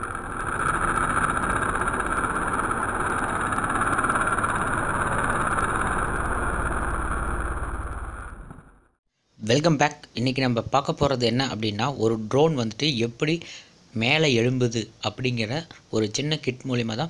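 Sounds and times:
small motor fan whirring: 0.0s - 8.7s.

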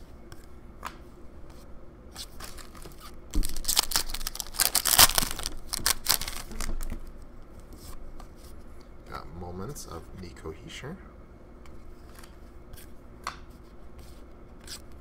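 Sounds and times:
foil wrapper crinkling and ripping: 2.2s - 7.0s.

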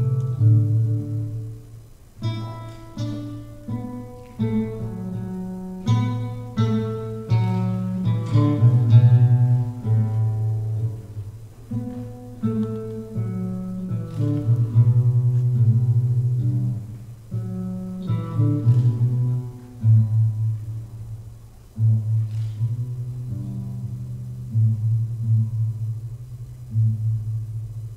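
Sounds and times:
classical guitar fingerstyle melody: 0.0s - 27.9s.

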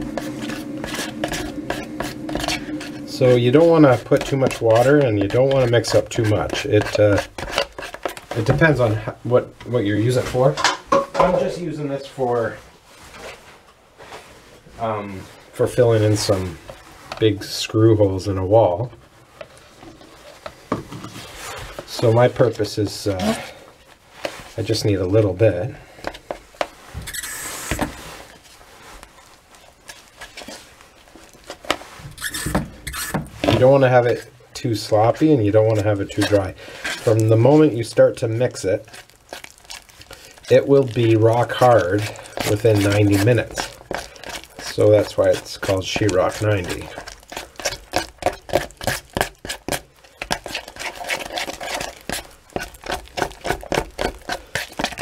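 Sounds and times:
putty knife scraping in a tub: 0.0s - 8.8s, 26.1s - 28.6s, 31.4s - 37.8s, 38.5s - 55.0s.

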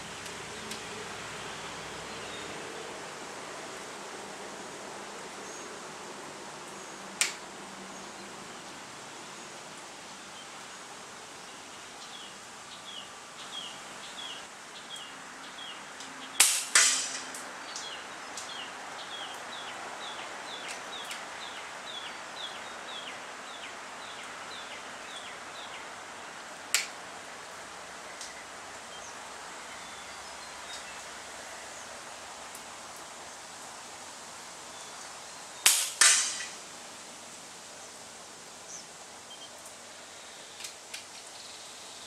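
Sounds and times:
air rifle shot crack: 16.4s - 17.3s, 35.7s - 36.6s
loud pellet hit: 16.4s - 17.3s, 35.7s - 36.6s.

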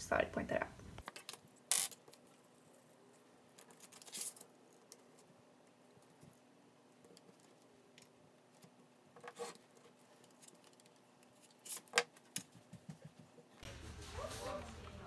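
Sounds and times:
craft knife cutting paper: 9.2s - 12.1s.

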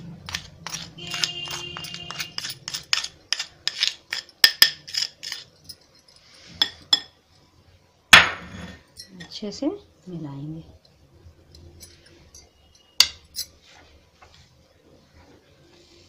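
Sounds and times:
spoon clattering: 0.2s - 7.1s
metal spoon clinking on glass bowl: 0.3s - 7.1s, 8.9s - 9.4s, 11.5s - 13.6s.

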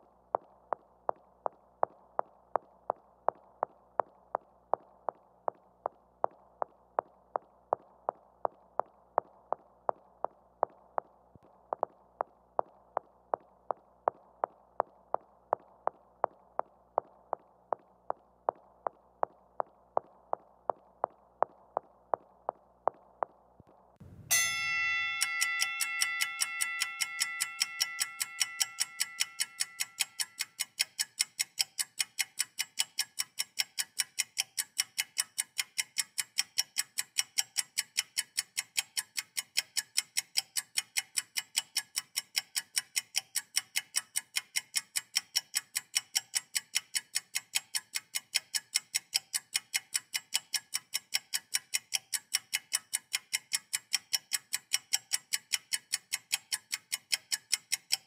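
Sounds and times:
clock-like ticking: 0.0s - 23.3s, 24.0s - 58.0s
bell-like chime: 24.3s - 29.8s.

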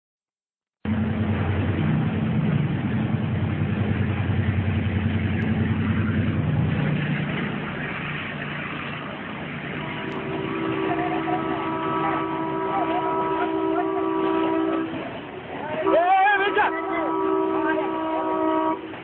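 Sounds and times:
vehicle engine running: 0.8s - 14.2s.

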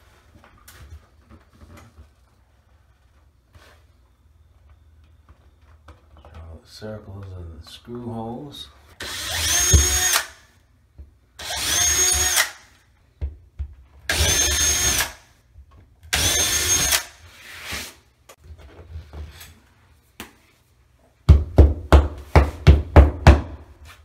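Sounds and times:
cordless drill whining: 9.0s - 10.3s, 11.4s - 12.6s, 14.1s - 15.2s, 16.2s - 17.2s.

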